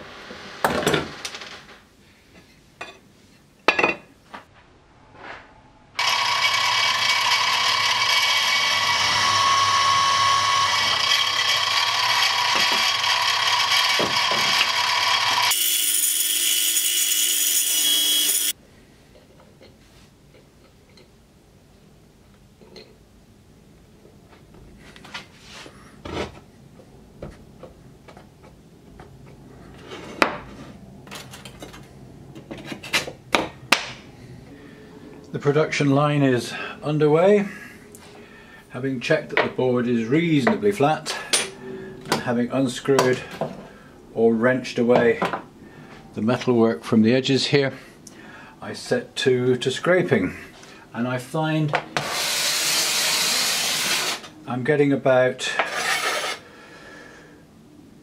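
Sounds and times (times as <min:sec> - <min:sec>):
power tool motor running: 0:06.0 - 0:18.5, 0:55.7 - 0:56.4.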